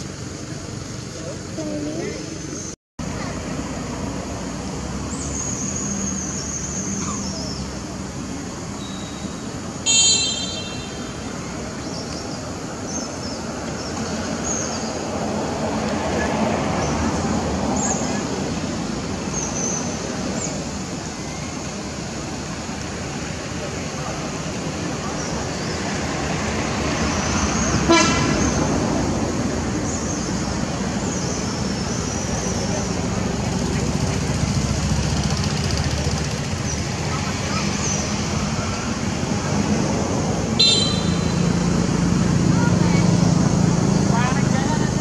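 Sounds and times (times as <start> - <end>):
distant traffic: 0.0 - 45.0
faint high chirps: 8.8 - 11.3.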